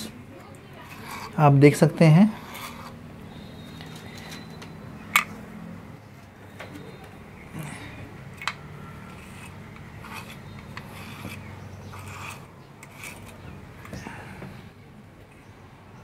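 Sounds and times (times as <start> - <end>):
brush scratching through fur: 9.1 - 13.6.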